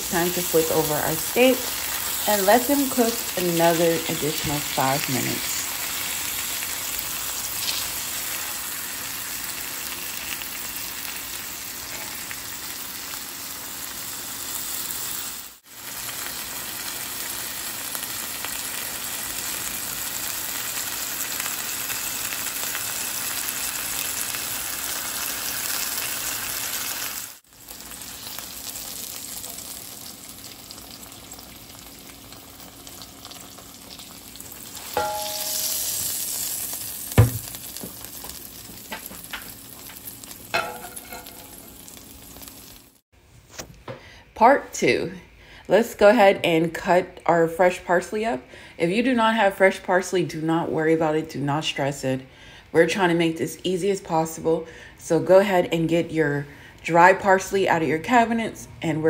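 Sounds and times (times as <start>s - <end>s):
meat sizzling in oil: 0.0s - 43.0s.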